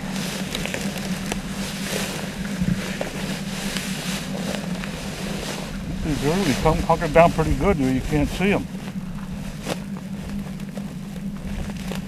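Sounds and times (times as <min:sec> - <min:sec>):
wind buffeting microphone: 0:00.0 - 0:10.5
footsteps crunching dry grass: 0:00.0 - 0:12.0
steady low hum: 0:00.0 - 0:12.0.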